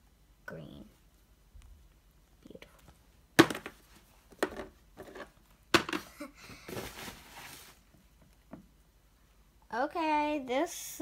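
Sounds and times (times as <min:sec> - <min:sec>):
plastic figures knocking: 0:03.4 - 0:06.2
rustling: 0:06.6 - 0:08.2.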